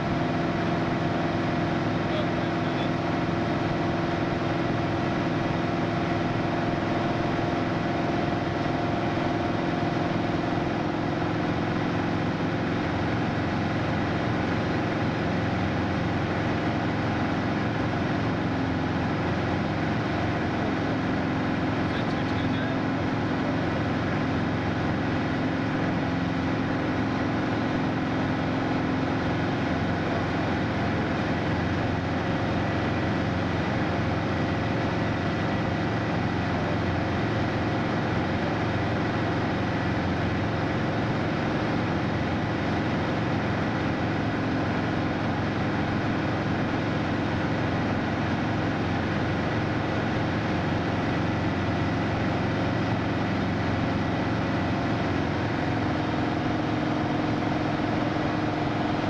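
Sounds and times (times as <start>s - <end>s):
propeller aircraft engine drone: 0.0s - 59.0s.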